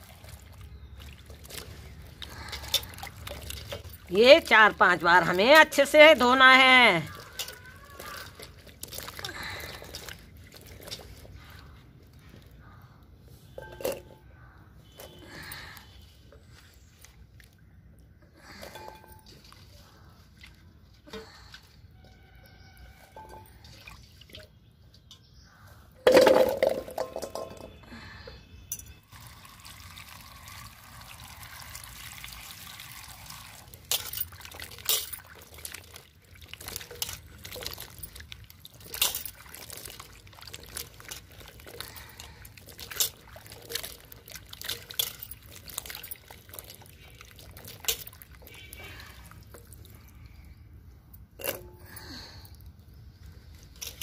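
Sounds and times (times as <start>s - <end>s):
water splashing in steel bowl: 0.0s - 12.2s, 18.7s - 25.1s, 26.0s - 27.7s, 29.1s - 50.6s.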